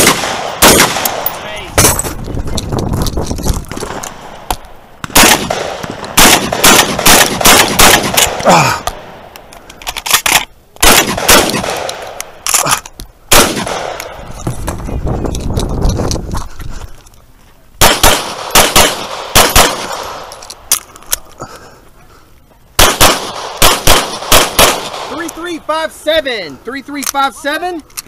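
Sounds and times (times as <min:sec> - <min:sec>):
pistol shots: 0:00.0 - 0:02.1, 0:05.0 - 0:09.1, 0:10.8 - 0:12.5, 0:13.3 - 0:14.2, 0:17.8 - 0:20.4, 0:22.8 - 0:25.3
shotgun blasts: 0:00.0 - 0:02.2, 0:05.0 - 0:09.1, 0:10.8 - 0:12.2, 0:13.3 - 0:14.2, 0:17.8 - 0:20.3, 0:22.8 - 0:25.3.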